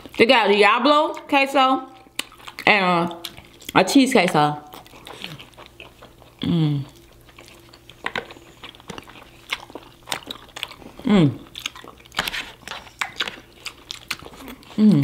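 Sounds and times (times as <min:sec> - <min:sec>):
crunchy wet chewing: 0:01.1 - 0:14.8
person humming mmm: 0:06.4 - 0:07.0, 0:11.0 - 0:11.5, 0:14.6 - 0:15.0.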